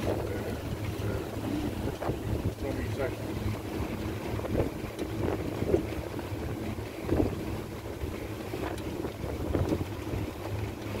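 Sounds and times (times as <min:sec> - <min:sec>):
boat motor humming: 0:00.0 - 0:11.0
wind buffeting microphone: 0:00.0 - 0:11.0.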